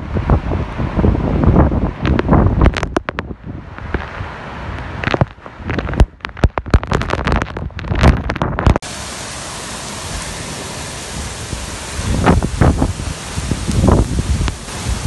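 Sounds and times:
wind striking microphone: 0:00.0 - 0:08.8, 0:11.2 - 0:15.0
wind gust: 0:00.0 - 0:15.0
hail tapping: 0:02.0 - 0:04.1, 0:04.8 - 0:08.9, 0:12.0 - 0:15.0
heavy rain hissing: 0:06.9 - 0:15.0.

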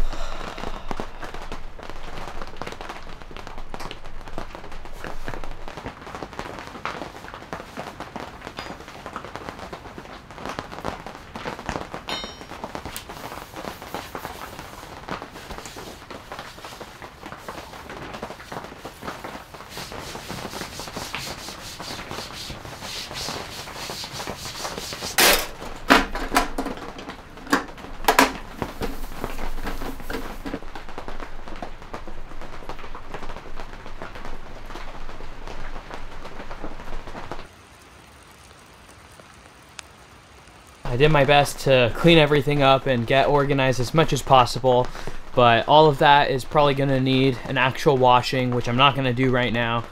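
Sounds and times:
quiet steady hiss: 0:12.0 - 0:49.9
paper towel wiping tabletop: 0:13.2 - 0:25.4, 0:28.4 - 0:30.6.

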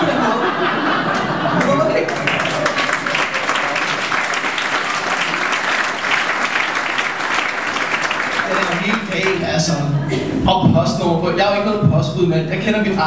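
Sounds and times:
audience applauding: 0:01.1 - 0:09.6.

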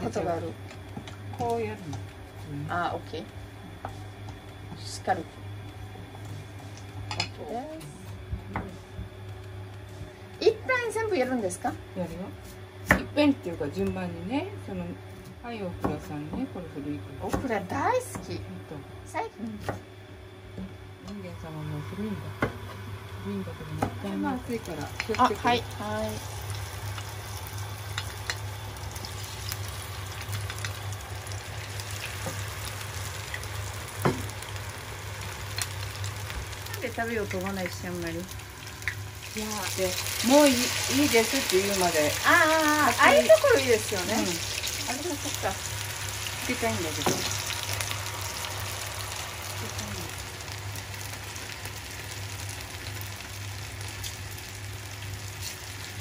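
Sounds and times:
low steady hum: 0:00.0 - 0:56.0
deep-frying sizzle: 0:22.8 - 0:56.0.

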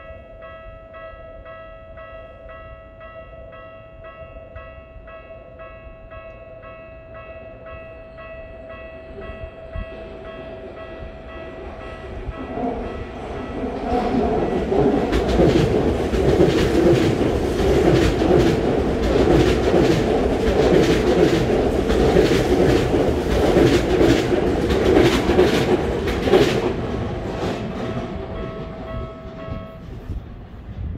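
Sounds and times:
electric train passing at speed: 0:00.0 - 0:30.9.

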